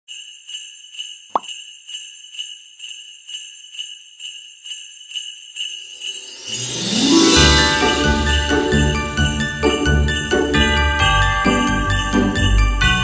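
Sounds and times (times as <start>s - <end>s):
sleigh bells shaking: 0.1s - 13.0s
music: 6.0s - 13.0s.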